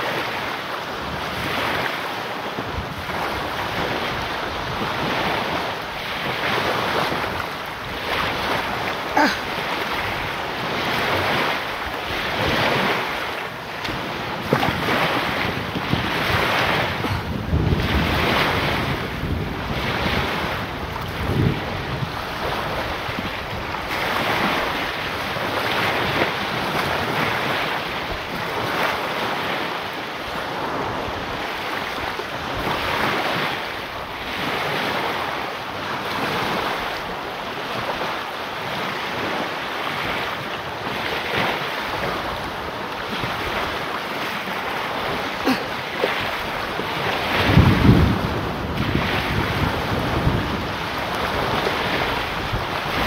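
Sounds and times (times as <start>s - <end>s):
small waves breaking on beach: 0.0s - 53.0s
wind buffeting microphone: 0.0s - 53.0s.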